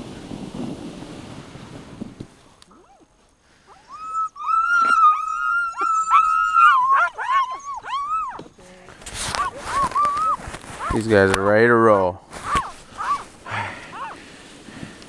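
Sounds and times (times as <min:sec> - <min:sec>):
sled dogs whining and howling: 0:03.7 - 0:08.5, 0:09.2 - 0:11.0, 0:12.3 - 0:14.2.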